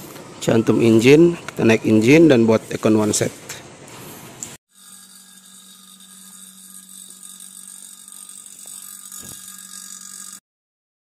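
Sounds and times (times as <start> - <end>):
vacuum pump humming and hissing: 4.7 - 10.4.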